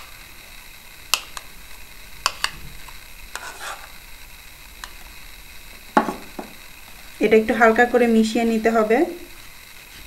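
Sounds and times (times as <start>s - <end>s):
spoon scraping bowl: 3.3s - 4.0s.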